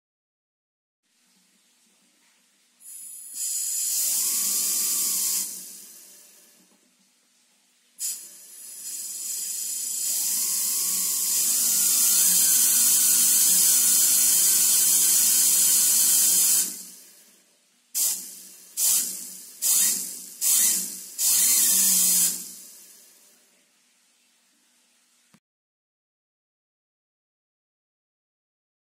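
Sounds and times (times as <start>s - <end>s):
short air bursts: 2.8s - 6.6s, 8.0s - 17.1s, 18.0s - 23.2s
compressed air hissing: 8.0s - 17.1s, 18.0s - 23.2s.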